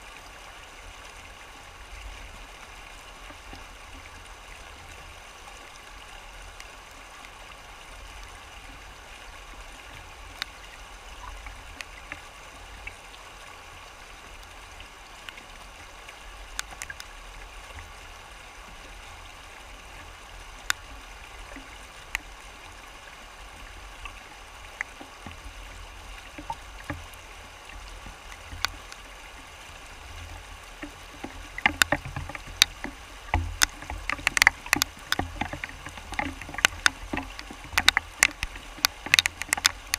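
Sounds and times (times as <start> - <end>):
river water rushing over rocks: 0.0 - 39.9
sharp clicks and knocks: 16.6 - 17.1, 26.4 - 27.2, 28.4 - 29.1, 30.8 - 39.9.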